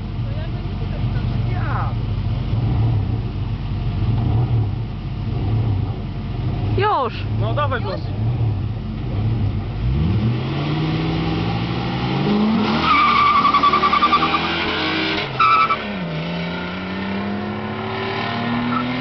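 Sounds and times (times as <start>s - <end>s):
car engines revving: 0.0s - 19.0s
tyres squealing: 12.7s - 14.6s.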